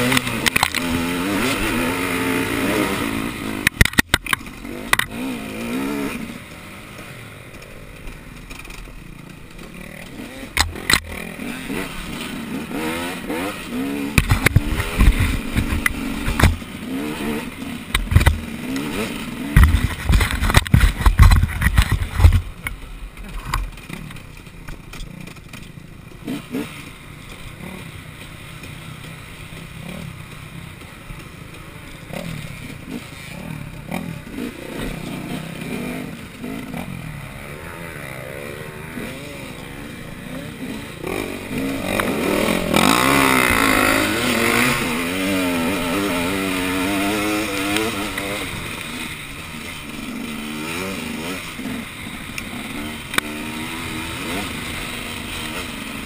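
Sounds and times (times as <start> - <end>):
clatter and knocks: 14.2 - 16.6, 17.9 - 18.5, 19.5 - 25.7
racing engine revving: 37.5 - 56.0.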